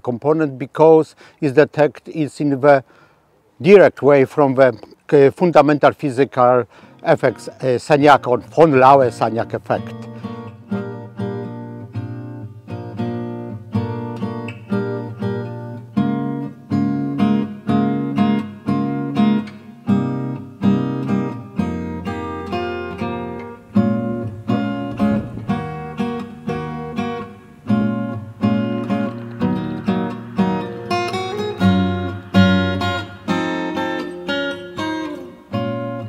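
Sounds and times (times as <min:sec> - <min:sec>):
acoustic guitar strumming: 0:05.8 - 0:36.0.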